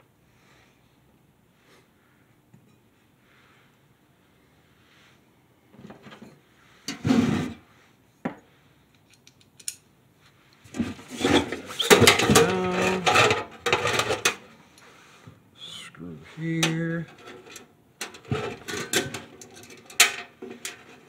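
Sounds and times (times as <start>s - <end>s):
metal clattering and scraping: 10.7s - 14.7s, 16.6s - 21.0s.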